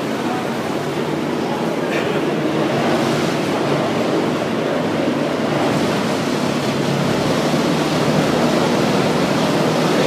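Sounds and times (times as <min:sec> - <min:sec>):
canal boat rushing noise: 0:00.0 - 0:10.0.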